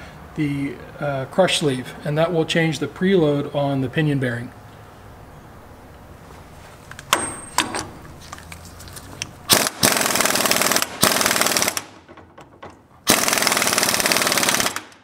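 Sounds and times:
impact wrench hammering: 7.1 - 8.0, 9.5 - 15.0.

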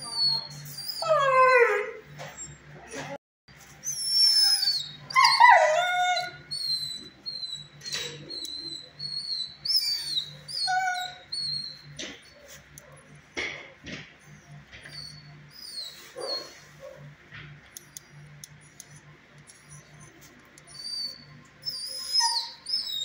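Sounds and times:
dog whining and whimpering: 0.0 - 3.2, 3.8 - 12.5, 14.3 - 16.6, 18.6 - 23.0
dog yelping: 3.9 - 12.4, 14.8 - 17.0, 19.7 - 23.0
dog howling: 4.3 - 7.6.

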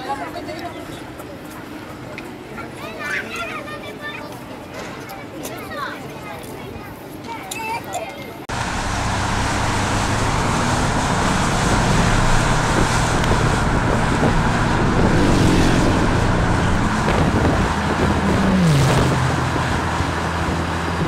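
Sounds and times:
car engine hum: 8.5 - 21.0
low engine tone dropping in pitch: 8.5 - 21.0
road and wind noise: 8.5 - 21.0.

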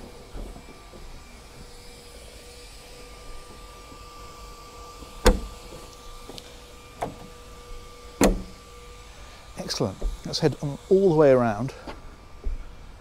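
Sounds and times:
hatch closing thump: 5.2 - 5.6, 8.2 - 8.6.

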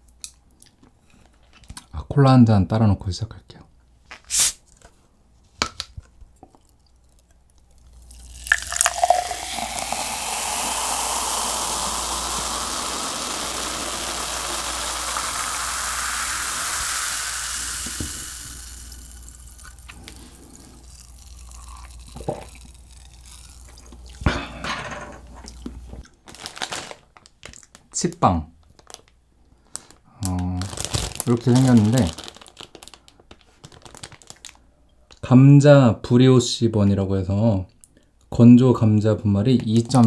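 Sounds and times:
cola pouring into a glass: 6.6 - 24.2
soft fizz in glass: 7.0 - 24.2.

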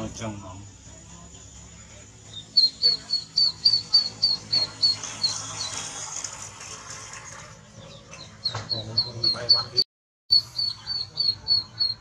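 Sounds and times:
ducklings peeping: 2.2 - 5.9, 7.7 - 12.0.

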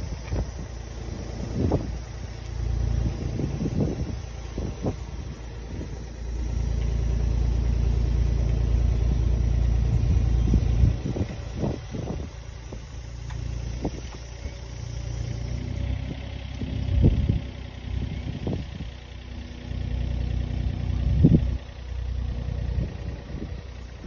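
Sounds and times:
wind buffeting microphone: 0.0 - 7.7, 9.5 - 14.7, 15.3 - 19.0, 21.0 - 21.6, 22.5 - 24.0
diesel engine running: 0.0 - 24.0.

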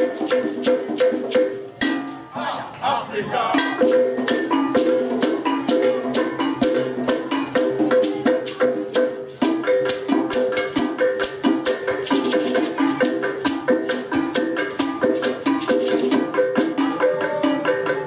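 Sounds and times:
hand-held metal bells struck: 3.6 - 18.0
basket rattle shaken: 3.7 - 18.0.

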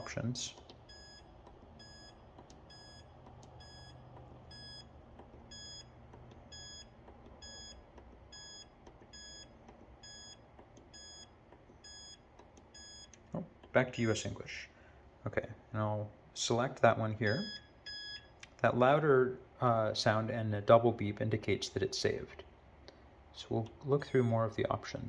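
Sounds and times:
faint electronic beeps: 0.0 - 13.2, 17.2 - 18.3.

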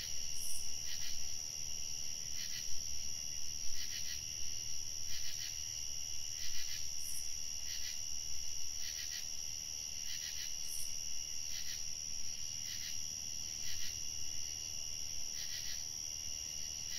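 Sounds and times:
insect pulsing: 0.0 - 1.3
crickets trilling: 0.0 - 16.9.

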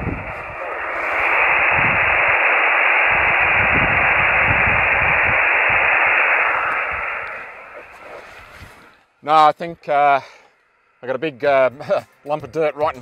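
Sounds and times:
radio receiver hiss: 0.0 - 9.5.

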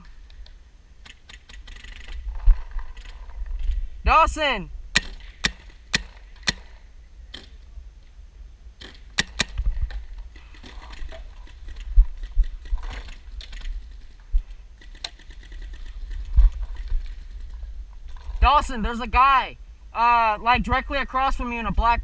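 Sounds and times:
paintball markers firing: 0.0 - 3.1, 4.9 - 7.7, 8.8 - 14.0.

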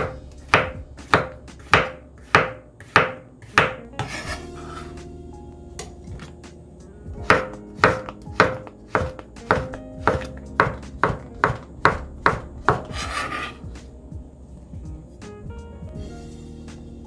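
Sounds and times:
knife chopping on cutting board: 0.0 - 4.9, 7.2 - 13.6
knife scraping cutting board: 0.0 - 5.0, 12.7 - 13.6.

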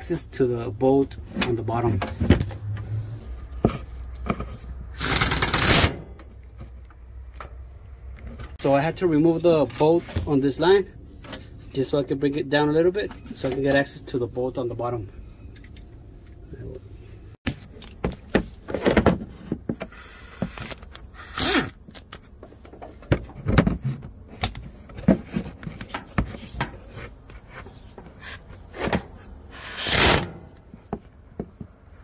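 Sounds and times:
power ratchet turning bolt: 5.0 - 6.0.

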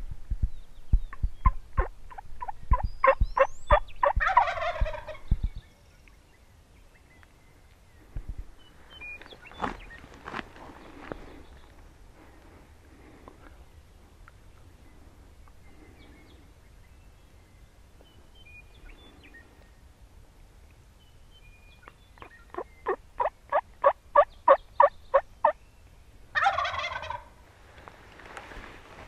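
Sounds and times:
turkey gobbling: 1.4 - 5.2, 22.5 - 25.6, 26.4 - 27.3
turkey call yelps: 26.4 - 27.3.

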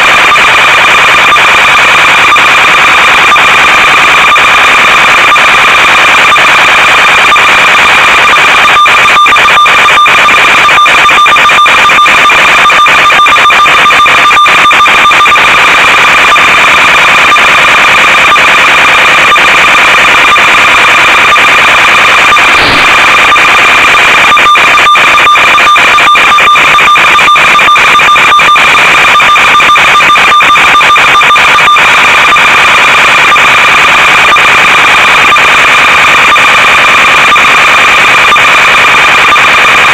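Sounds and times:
buzzing static: 0.0 - 35.5
high-pitched tone: 22.0 - 25.2.

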